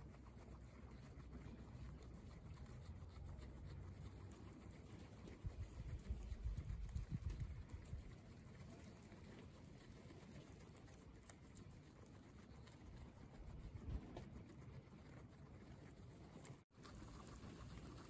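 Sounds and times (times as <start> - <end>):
guinea pigs chewing grass: 0.0 - 18.0.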